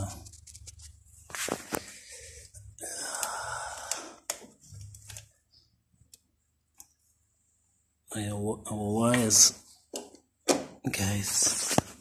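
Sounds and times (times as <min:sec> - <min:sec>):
breathy hiss: 0:01.9 - 0:04.2.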